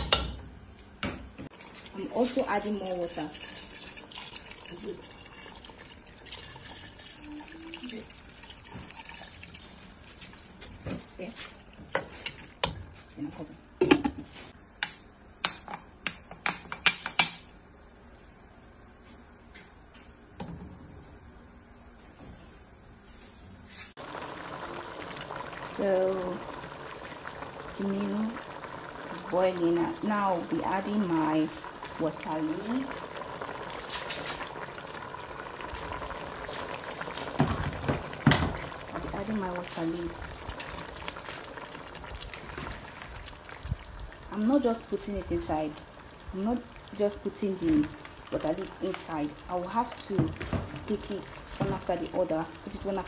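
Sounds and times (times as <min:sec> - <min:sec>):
soup boiling and bubbling: 0:01.5 - 0:13.1, 0:24.0 - 0:53.0.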